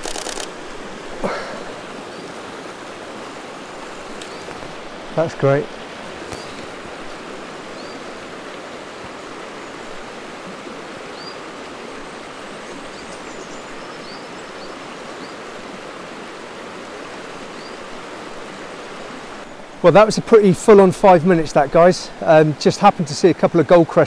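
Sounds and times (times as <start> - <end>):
river running: 0.0 - 24.0
small birds calling: 1.2 - 10.2, 11.0 - 15.6, 17.4 - 18.0.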